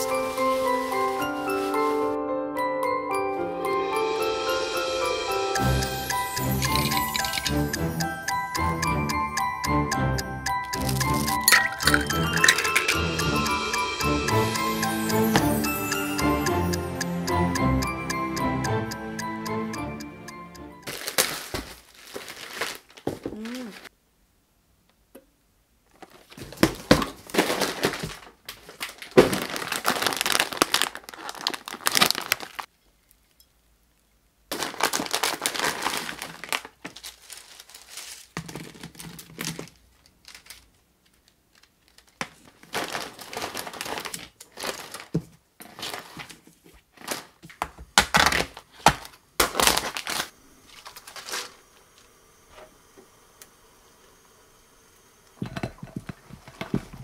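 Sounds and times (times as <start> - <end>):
plastic packaging crinkling: 0.0 - 2.2, 6.3 - 7.7, 10.7 - 13.0, 20.8 - 23.9, 25.9 - 32.7, 34.5 - 51.6.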